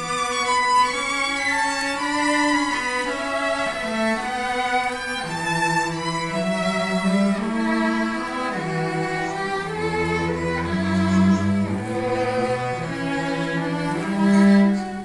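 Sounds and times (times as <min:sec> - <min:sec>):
sustained cello notes: 0:00.0 - 0:15.0
violin melody: 0:00.0 - 0:15.0.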